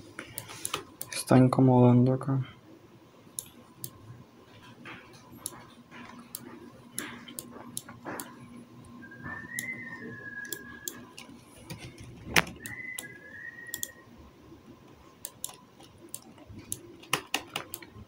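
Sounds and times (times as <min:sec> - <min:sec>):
high whistle-like tones: 0:09.0 - 0:11.1, 0:12.4 - 0:14.1
mouse and keyboard clicking: 0:13.7 - 0:13.9, 0:15.2 - 0:18.0.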